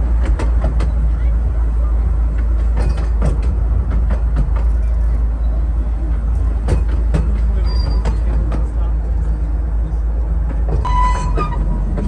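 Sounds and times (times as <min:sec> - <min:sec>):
train wheel clicks on rail joints: 0:00.0 - 0:01.2, 0:02.3 - 0:05.4, 0:06.2 - 0:08.9
miniature train rumbling: 0:00.0 - 0:12.0.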